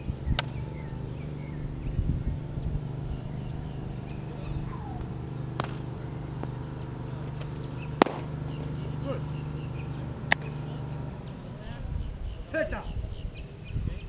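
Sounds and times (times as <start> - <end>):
steady low hum: 0.0 - 14.0
baseball smacking into leather mitt: 5.0 - 6.6, 7.3 - 8.4.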